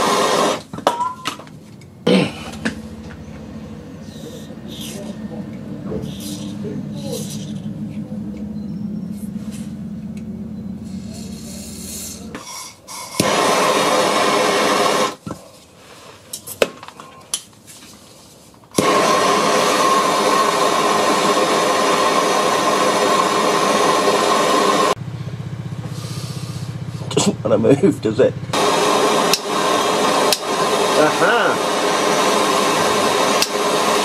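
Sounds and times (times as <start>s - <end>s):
blowtorch flame hissing: 0.0s - 0.8s, 4.0s - 7.9s, 10.8s - 16.2s, 18.7s - 25.0s, 28.5s - 34.0s
low steady hum: 0.8s - 12.5s.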